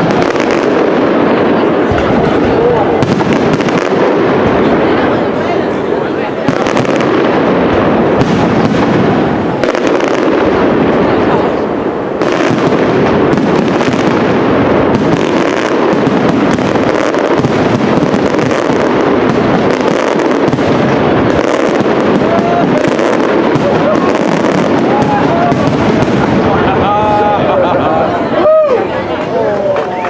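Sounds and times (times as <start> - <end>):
firework shells bursting: 6.4 - 26.7.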